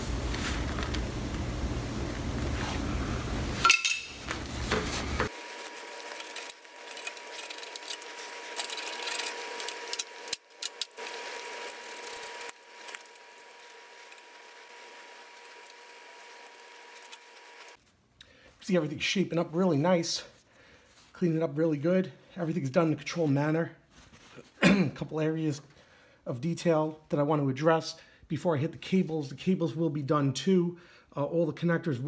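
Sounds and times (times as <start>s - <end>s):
rag rubbing: 3.5s - 15.6s.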